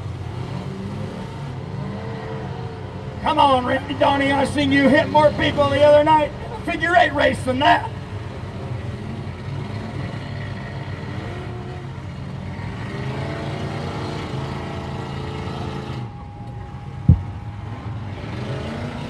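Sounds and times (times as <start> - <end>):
car engines revving: 0.0 - 19.0
dull thump: 17.0 - 17.3.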